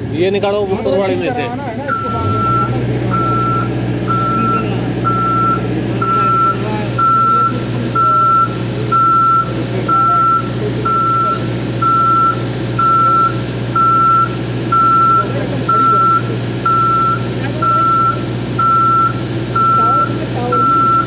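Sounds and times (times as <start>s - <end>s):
engine humming: 0.0s - 21.0s
alarm beeping: 1.9s - 21.0s.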